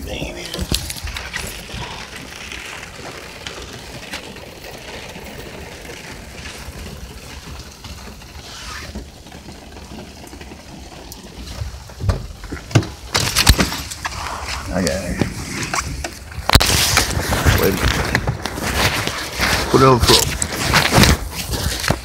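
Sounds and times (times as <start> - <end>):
jacket rustling on microphone: 14.0 - 22.0.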